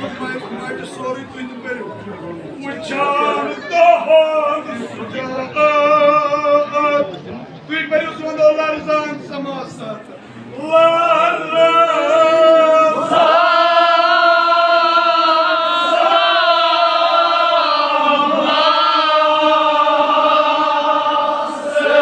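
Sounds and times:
men chanting: 10.6s - 22.0s.

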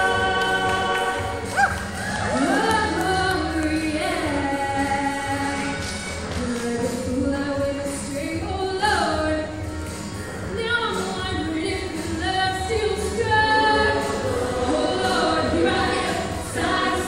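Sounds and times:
choir singing: 0.0s - 5.8s, 12.8s - 17.0s
backing music: 0.0s - 17.0s
woman singing pop song: 0.0s - 17.0s.

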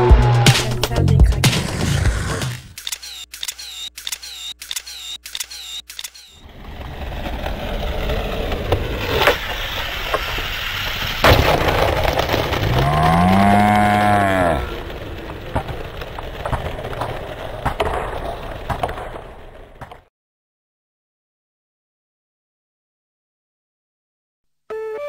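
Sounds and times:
electronic clicking with chirps: 2.8s - 6.4s
skateboard impacts: 6.4s - 20.1s
skateboard wheels rolling on bricks: 6.4s - 20.1s.

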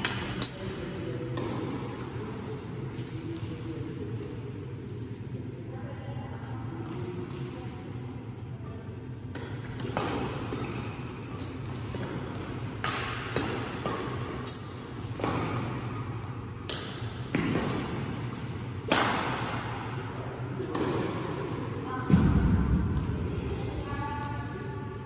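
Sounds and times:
racket hitting shuttlecock: 9.3s - 10.8s, 11.9s - 15.8s, 16.6s - 17.8s, 18.8s - 19.9s, 20.6s - 21.3s.

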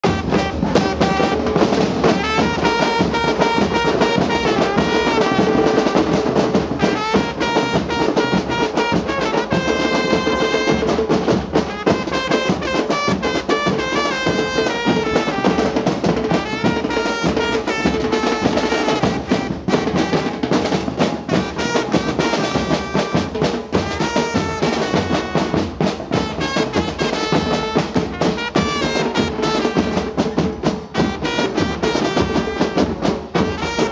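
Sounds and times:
pounding bass drums with cymbals: 0.0s - 33.9s
trumpet melody: 0.0s - 33.9s.

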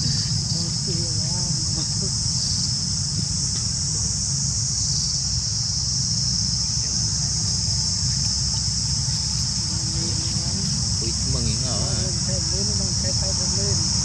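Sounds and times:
high-pitched insect chorus: 0.0s - 14.0s.

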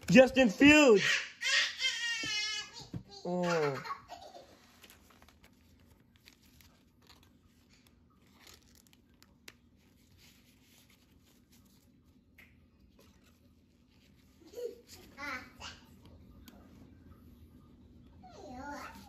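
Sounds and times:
cards and plastic sleeves rustling: 3.6s - 15.2s.

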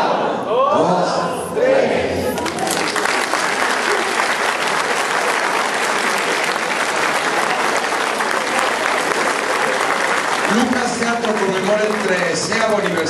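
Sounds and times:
many hands clapping: 2.3s - 13.0s.

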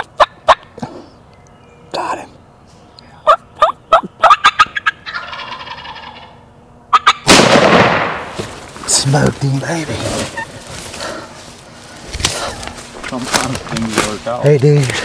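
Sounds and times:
turkey gobbling: 0.0s - 0.8s, 3.2s - 7.3s, 10.2s - 10.7s.

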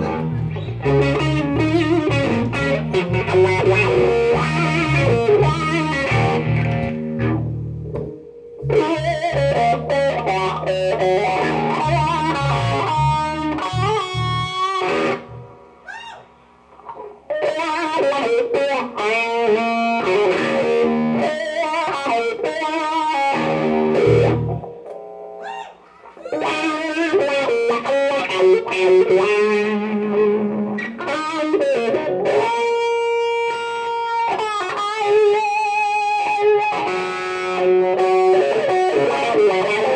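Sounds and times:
electric bass: 0.0s - 15.8s, 17.1s - 21.5s, 22.2s - 25.0s
electric guitar lead: 0.0s - 15.9s, 16.7s - 39.9s.

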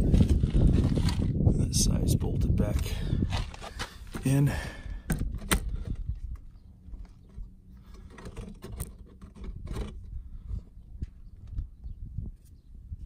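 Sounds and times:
phone handling knocks and scrapes: 7.1s - 10.1s.

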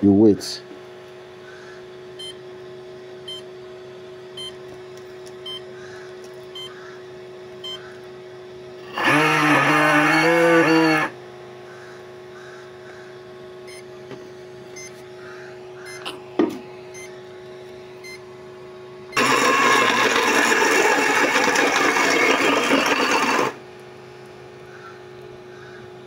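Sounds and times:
blender motor blending: 8.8s - 11.2s, 19.2s - 23.6s.

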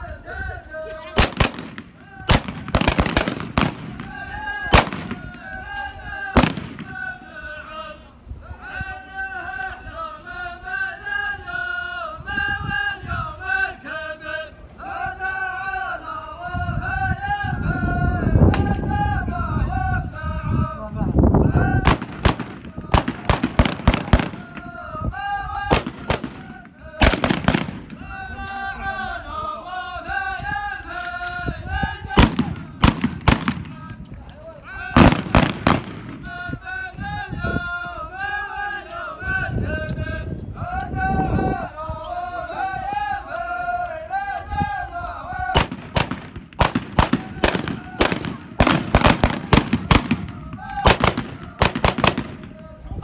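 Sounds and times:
men chanting in unison: 0.0s - 53.0s
loud sharp cracks: 1.2s - 5.4s, 6.4s - 7.0s, 21.9s - 24.7s, 25.6s - 28.7s, 32.1s - 34.2s, 35.0s - 36.4s, 45.6s - 52.6s.

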